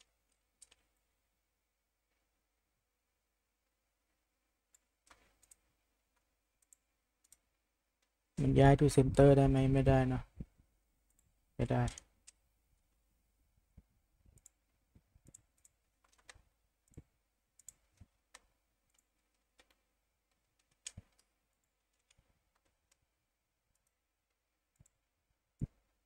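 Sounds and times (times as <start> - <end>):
mouse and keyboard clicks: 0.0 - 0.9, 4.7 - 7.5, 14.3 - 14.6, 15.2 - 23.1, 23.7 - 26.0.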